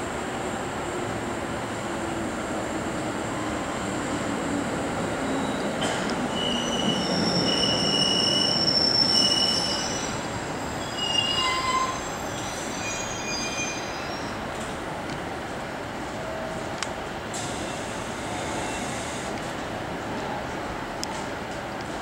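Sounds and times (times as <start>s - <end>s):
train rumble: 0.0s - 9.2s
train brakes squealing: 5.1s - 14.6s, 17.4s - 19.3s.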